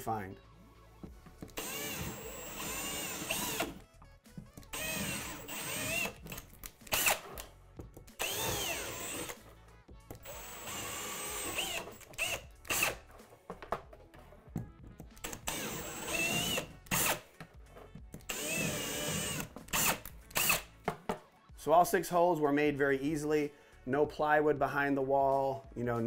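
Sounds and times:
cordless drill boring drywall: 1.6 - 3.8, 4.7 - 6.3, 6.9 - 7.4, 8.2 - 9.4, 10.2 - 13.0, 15.2 - 17.2, 18.3 - 20.7.

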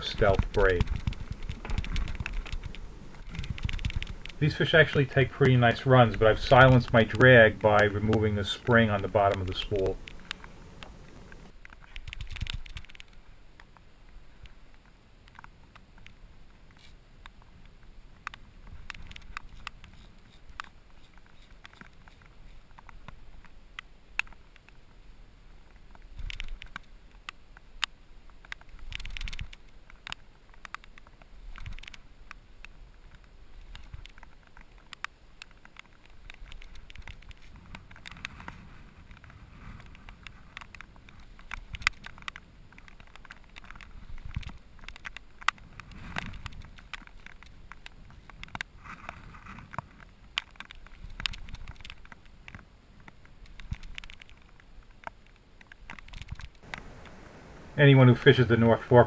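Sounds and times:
wind rumble: 0.0 - 11.5, 56.6 - 58.8
fishing reel clicks and rustles: 0.0 - 13.8, 25.8 - 59.0.

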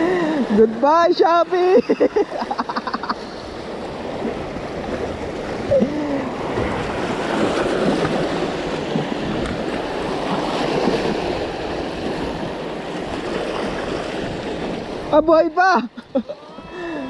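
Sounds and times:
waves splashing over rocks: 0.0 - 17.0
wind buffeting microphone: 3.4 - 17.0.

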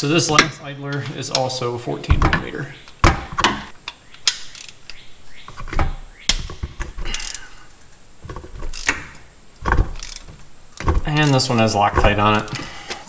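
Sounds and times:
ratchet wrench clicking: 4.2 - 5.0, 6.3 - 7.5, 8.7 - 9.2, 9.9 - 11.5.

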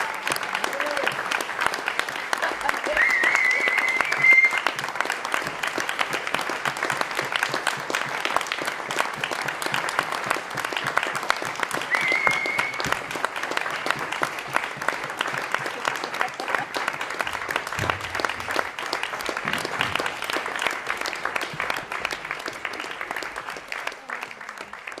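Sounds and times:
audience applauding: 0.0 - 25.0
high whistle: 3.0 - 4.8, 11.9 - 13.0.

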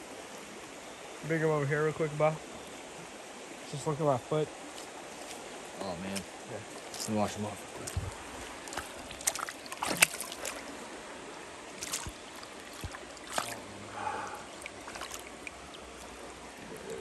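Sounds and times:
stream running: 0.0 - 17.0
hands splashing water: 7.8 - 10.7, 11.8 - 13.7, 14.3 - 16.2.

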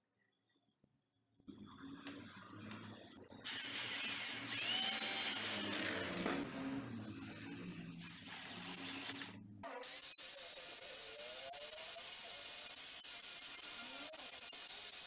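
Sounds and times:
cordless drill running: 3.5 - 6.3.

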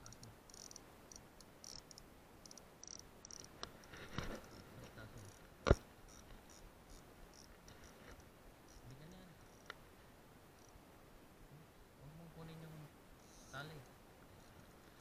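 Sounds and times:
crickets chirping: 0.0 - 11.0, 11.6 - 15.0
clothing and grass rustling: 3.6 - 6.5.

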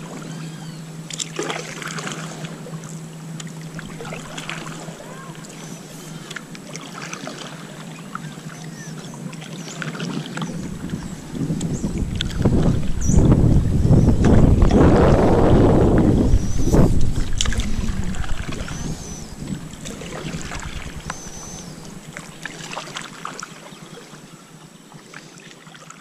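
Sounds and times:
paddle splashing in water: 0.0 - 13.5, 14.2 - 26.0
wind buffeting microphone: 10.2 - 22.8.

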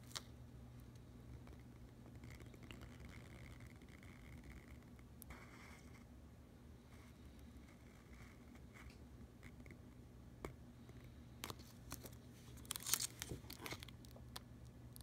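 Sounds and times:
plastic film crinkling and crackling: 11.4 - 14.4.

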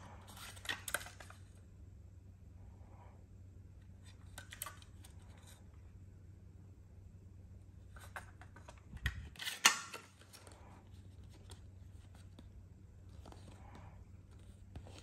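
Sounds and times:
paper rustling: 0.0 - 1.6, 13.1 - 15.0.

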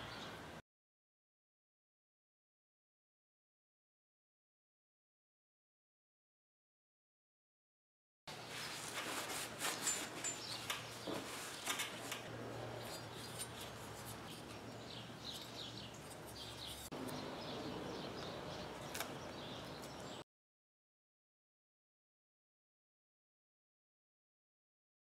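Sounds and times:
tools clicking tapping and scraping: 9.6 - 17.2.

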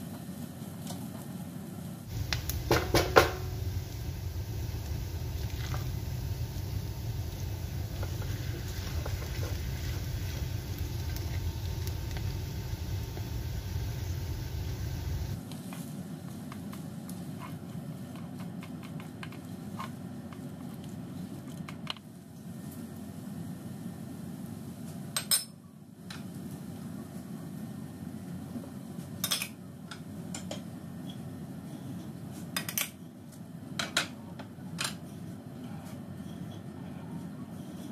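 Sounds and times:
low hum: 2.1 - 15.4
loud knock: 2.6 - 3.5.

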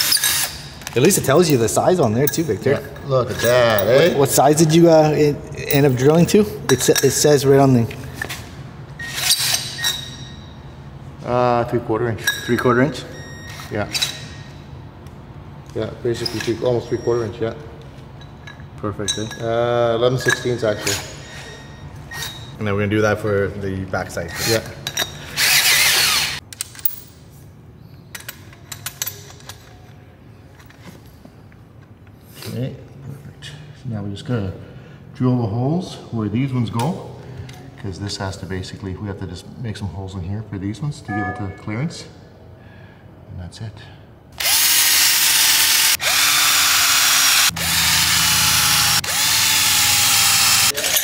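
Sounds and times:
cordless drill boring into steel: 25.4 - 26.4, 44.4 - 51.0.

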